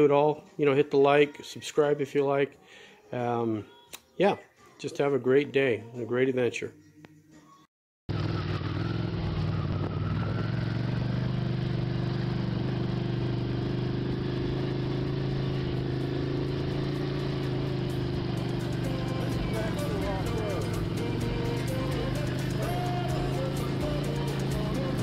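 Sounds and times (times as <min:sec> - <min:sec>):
motorcycle engine running: 0:08.1 - 0:25.0.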